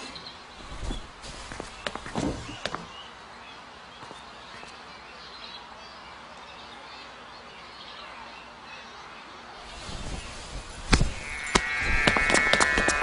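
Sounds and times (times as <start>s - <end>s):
sharp knocks or steps: 10.9s - 13.0s.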